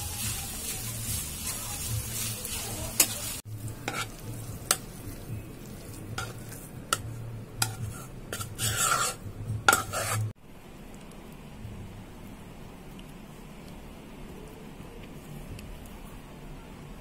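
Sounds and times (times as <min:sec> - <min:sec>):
food sizzling in frying pan: 0:00.0 - 0:10.4
spatula stirring: 0:00.0 - 0:10.4
rustling scrape: 0:07.6 - 0:10.3.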